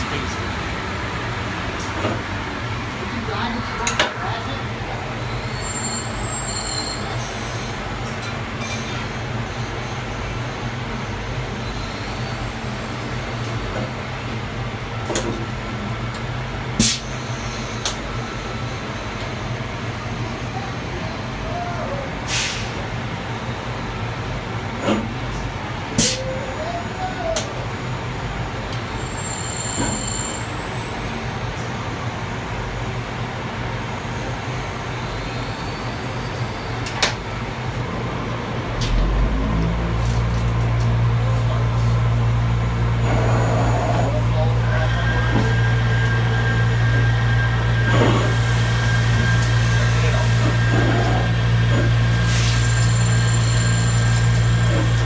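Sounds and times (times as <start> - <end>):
deeper machine hum: 37.7 - 52.2
grinding machine humming: 37.8 - 52.2.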